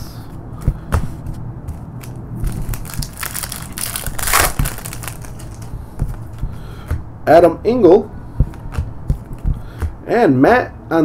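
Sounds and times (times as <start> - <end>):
foil wrapper crinkling: 2.0 - 6.2.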